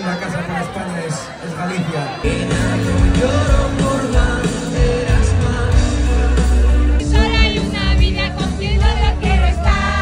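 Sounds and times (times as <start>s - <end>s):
live pop band playing: 2.1s - 10.0s.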